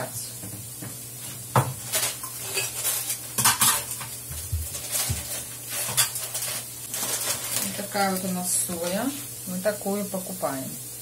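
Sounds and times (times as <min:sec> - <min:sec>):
onions sizzling in a pan: 0:00.0 - 0:11.0
containers and utensils clinking: 0:01.6 - 0:09.0.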